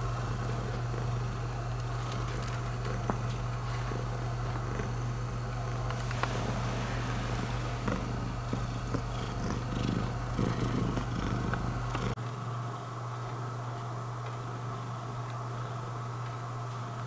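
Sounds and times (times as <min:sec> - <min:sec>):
cat purring: 0:00.0 - 0:12.2.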